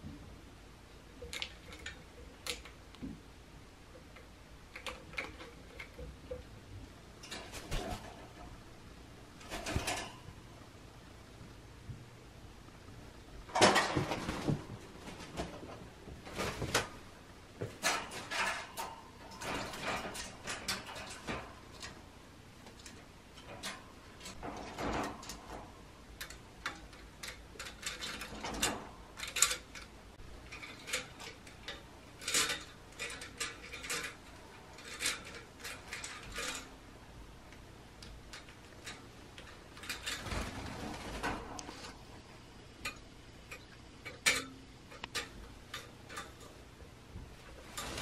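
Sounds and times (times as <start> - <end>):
birds tapping on cage: 9.4 - 10.2, 17.6 - 22.0, 22.6 - 25.6.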